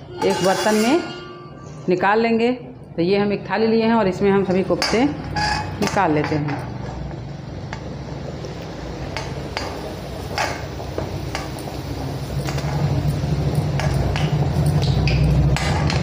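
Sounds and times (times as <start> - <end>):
wooden spatula scraping a pan: 0.2 - 1.4
food sizzling in hot oil: 7.8 - 16.0.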